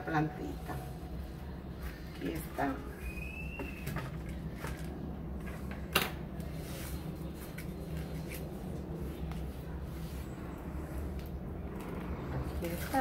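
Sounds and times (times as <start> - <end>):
potting soil scraping and rustling: 6.4 - 13.0.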